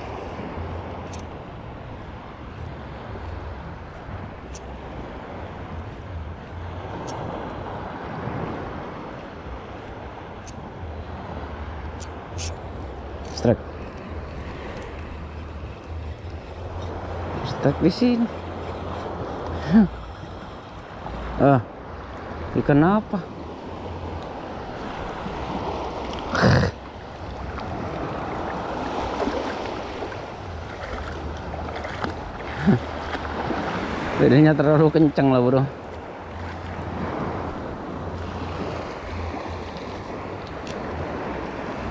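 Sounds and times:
small waves breaking on shore: 0:00.0 - 0:41.9
wind rumbling on microphone: 0:00.0 - 0:41.9
shallow sea water washing: 0:24.8 - 0:34.3.

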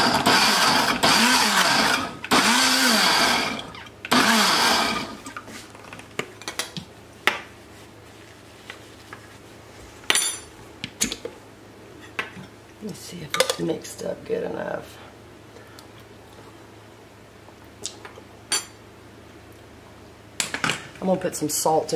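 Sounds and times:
blender pulsing: 0:00.0 - 0:05.4.

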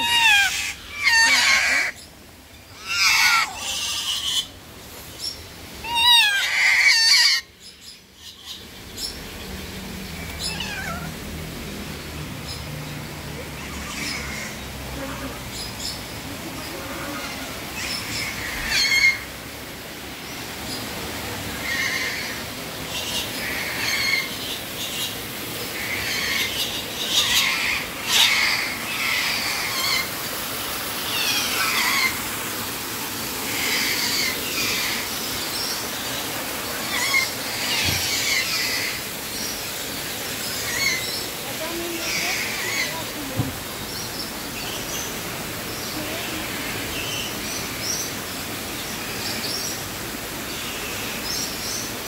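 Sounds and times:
parrots squawking and screeching: 0:00.0 - 0:02.0, 0:02.7 - 0:04.6, 0:05.8 - 0:07.6, 0:10.1 - 0:11.4, 0:13.4 - 0:15.6, 0:16.6 - 0:19.3, 0:21.5 - 0:25.1, 0:25.7 - 0:32.8, 0:33.4 - 0:35.7, 0:36.4 - 0:39.6, 0:40.4 - 0:43.5.

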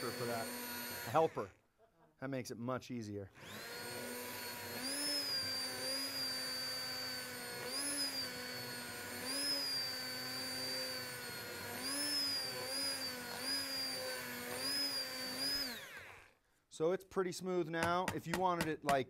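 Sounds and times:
stick blender motor whining: 0:00.0 - 0:01.6, 0:03.4 - 0:16.4.

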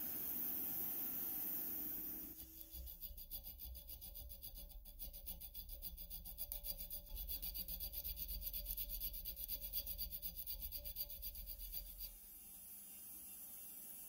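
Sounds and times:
hand file rasping on metal: 0:02.4 - 0:12.2.

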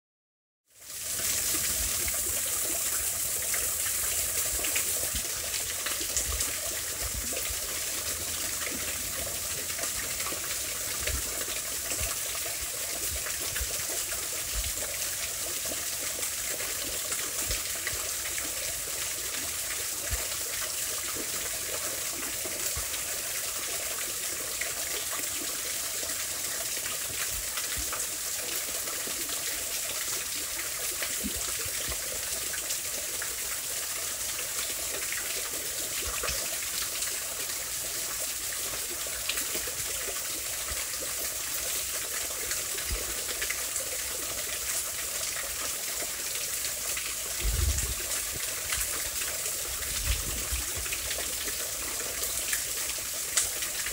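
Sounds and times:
small waterfall rushing splash: 0:00.8 - 0:53.9
low thumps: 0:47.4 - 0:48.2.

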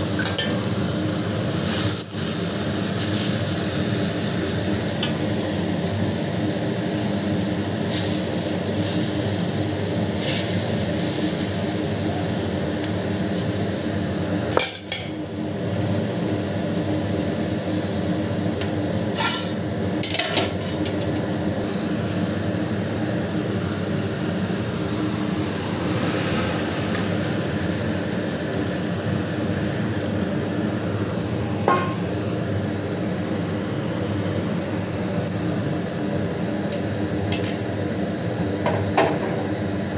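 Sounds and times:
cooking pot hissing: 0:00.0 - 0:38.5
metal spoon knocking on pot: 0:31.7 - 0:32.0.

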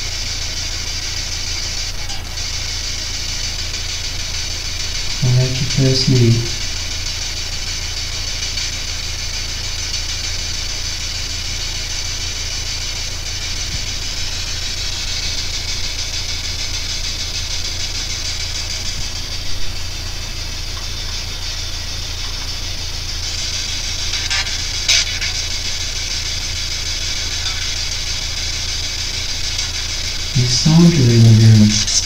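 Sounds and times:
radio static hiss: 0:00.0 - 0:32.0
low hum: 0:04.0 - 0:07.7, 0:13.1 - 0:32.0.

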